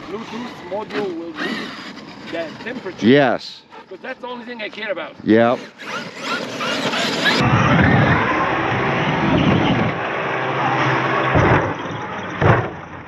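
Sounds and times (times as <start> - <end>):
electric motor whining: 0.0 - 3.1, 5.3 - 11.4
rush of tyre and wind noise: 6.4 - 13.0
toy truck landing thump: 12.4 - 13.0.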